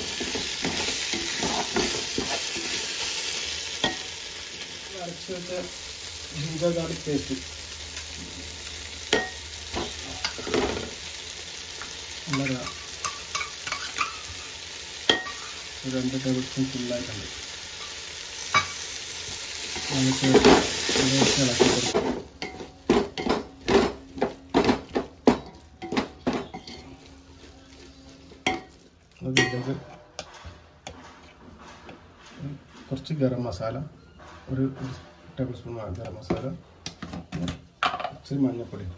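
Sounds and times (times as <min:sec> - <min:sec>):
spoon stirring and scraping: 0:00.0 - 0:02.9, 0:12.3 - 0:14.3, 0:24.0 - 0:32.0
food sizzling in a pan: 0:00.0 - 0:29.8.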